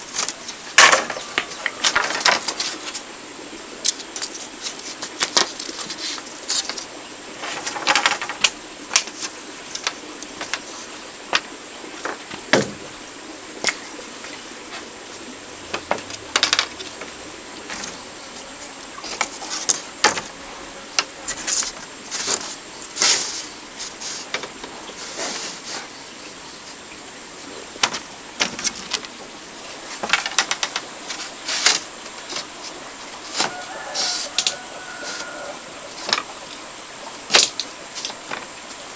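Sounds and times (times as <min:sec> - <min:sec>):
bamboo slats clacking together: 0:00.2 - 0:03.0, 0:03.8 - 0:10.7, 0:11.3 - 0:12.9, 0:15.7 - 0:18.0, 0:19.1 - 0:20.3, 0:27.8 - 0:29.2, 0:29.9 - 0:32.6, 0:35.2 - 0:36.4, 0:37.3 - 0:38.5.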